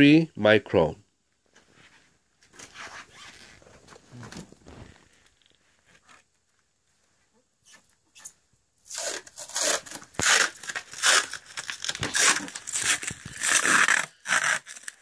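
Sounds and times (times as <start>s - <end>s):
plastic wrap rustling: 2.5s - 6.3s, 8.9s - 15.0s.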